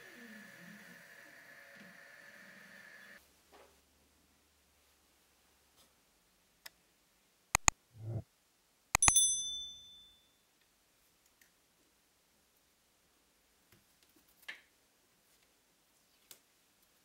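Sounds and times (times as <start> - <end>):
mouse clicks: 7.6 - 8.2, 9.0 - 9.2
short whoosh: 8.0 - 8.2
notification bell ding: 9.0 - 10.2.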